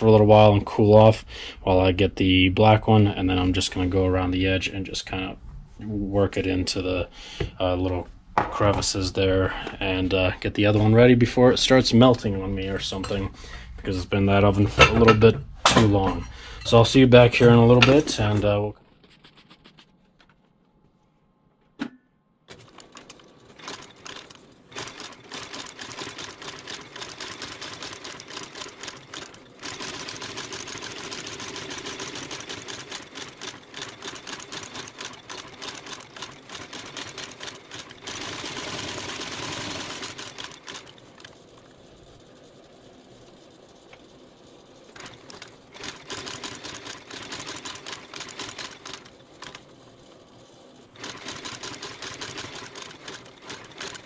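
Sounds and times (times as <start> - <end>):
trimming machine clattering: 22.5 - 41.7.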